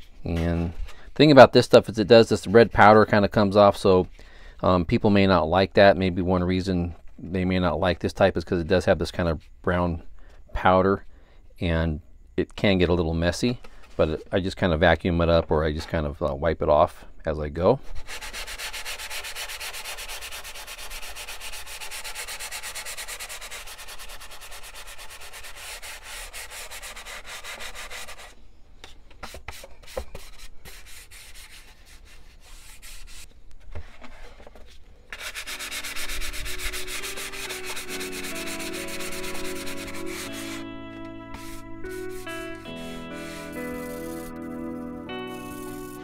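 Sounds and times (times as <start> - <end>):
sandpaper rubbing: 18.0 - 28.4, 29.2 - 33.3, 35.1 - 40.7, 41.3 - 46.0
background music: 35.3 - 46.0.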